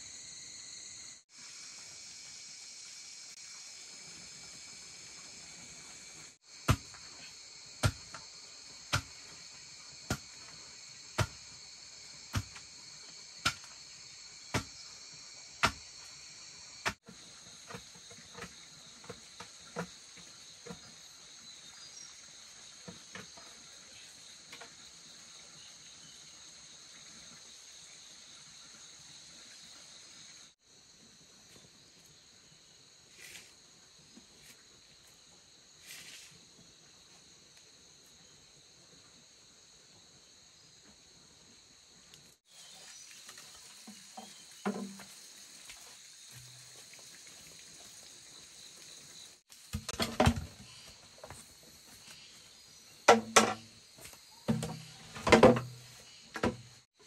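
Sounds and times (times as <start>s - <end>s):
insect chorus: 0.0s - 57.0s
tool striking bamboo: 6.7s - 7.0s, 7.8s - 8.2s, 8.9s - 9.4s, 11.2s - 11.4s, 12.3s - 12.7s, 13.4s - 13.7s, 14.5s - 14.8s, 15.6s - 15.8s, 53.1s - 53.7s.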